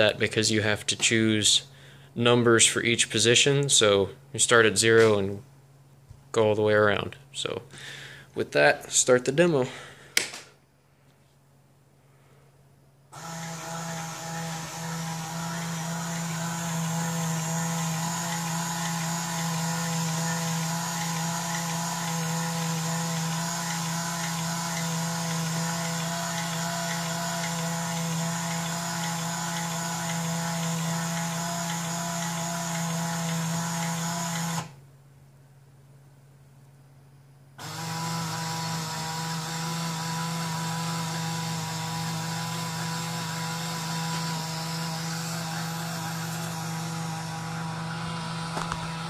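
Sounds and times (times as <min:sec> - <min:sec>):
turntable motor drone: 0:13.2 - 0:34.8, 0:37.6 - 0:49.0.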